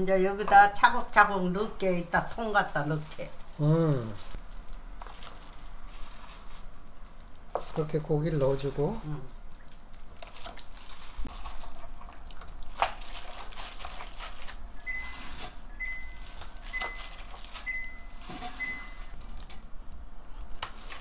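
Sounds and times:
hands squelching meat in marinade: 9.4s - 14.6s.

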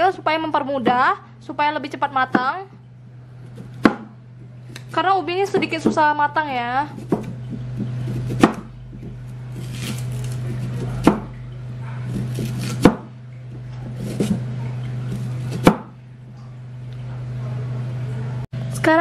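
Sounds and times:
steady low hum: 0.0s - 19.0s
knife knocking on cutting board: 3.8s - 4.2s, 7.0s - 9.2s, 10.8s - 11.3s, 12.2s - 13.1s
soft knife cutting sounds: 6.9s - 12.9s, 13.5s - 15.7s.

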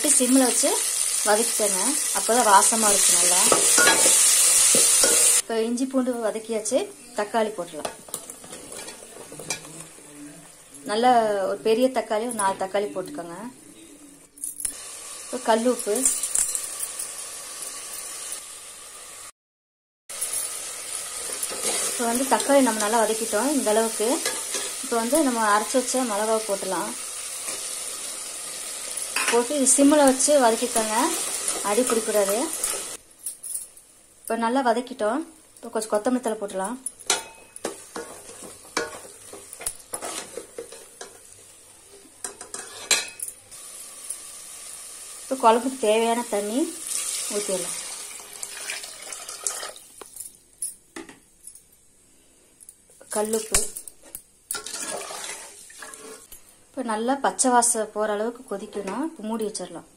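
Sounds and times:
tomatoes sizzling in oil: 0.0s - 13.6s, 14.7s - 19.3s, 20.1s - 33.2s, 33.9s - 50.2s, 53.1s - 59.7s
ladle scraping metal pot: 37.1s - 41.2s, 54.5s - 56.3s.

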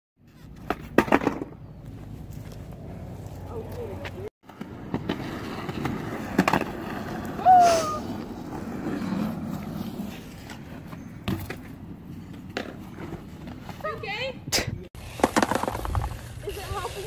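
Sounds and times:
skateboard wheels rolling on concrete: 0.2s - 17.0s
skateboard clacks: 15.2s - 16.1s.

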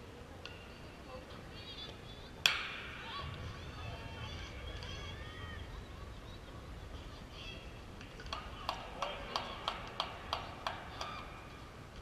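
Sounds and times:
faint distant voices: 0.0s - 12.0s
rhythmic hand clapping: 8.2s - 11.2s.

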